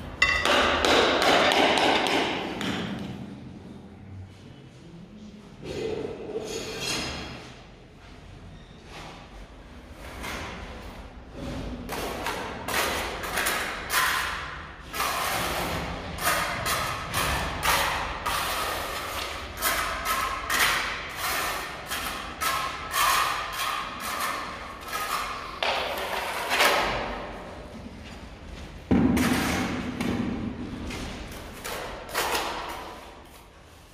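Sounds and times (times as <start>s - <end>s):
trowel scraping mortar on tiles: 11.6s - 27.2s.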